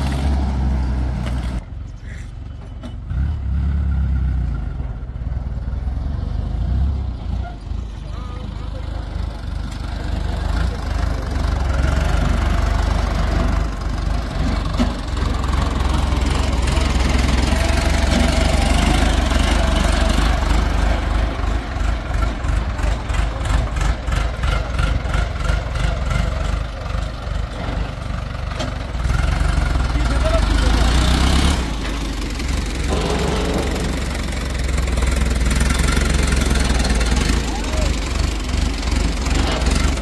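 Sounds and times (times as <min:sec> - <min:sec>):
tractor diesel engine rumble: 0:00.0 - 0:40.0
pulsing clatter: 0:32.0 - 0:37.6.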